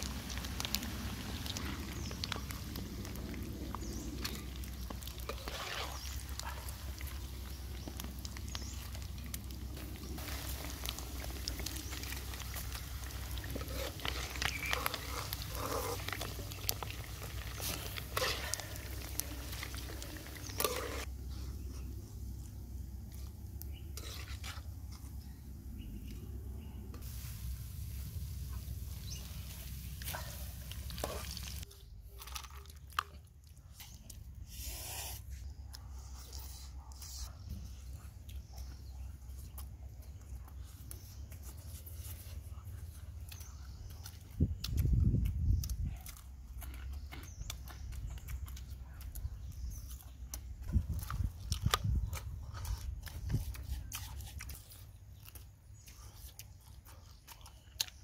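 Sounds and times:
hot oil sizzling in a wok: 10.2 - 16.2.

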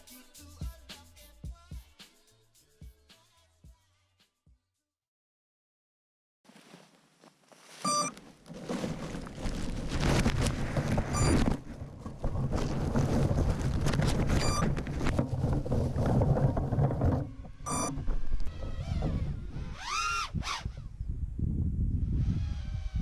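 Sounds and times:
short electronic beeps: 7.8 - 8.1, 11.2 - 11.4, 17.7 - 18.0
wind buffeting microphone: 9.7 - 23.0.

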